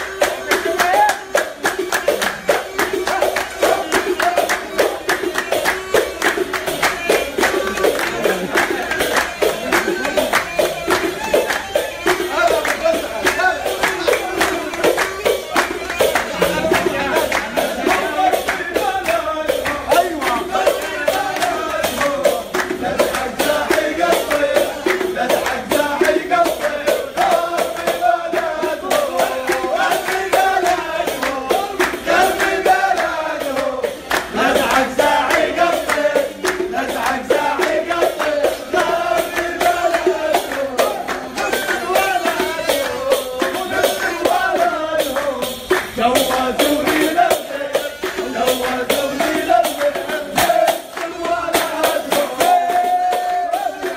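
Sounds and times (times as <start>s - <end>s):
fast percussion: 0.0s - 53.9s
handclapping: 0.0s - 53.9s
man singing with band: 36.8s - 53.9s.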